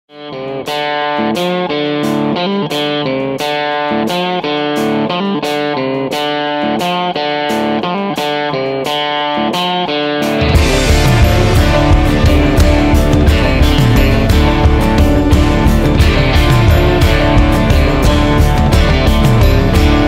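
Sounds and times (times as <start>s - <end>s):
guitar picking a riff: 0.1s - 20.0s.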